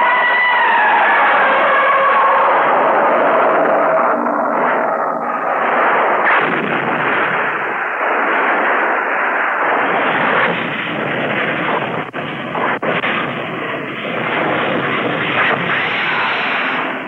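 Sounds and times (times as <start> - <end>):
rushing blast-like noise: 0.0 - 17.0.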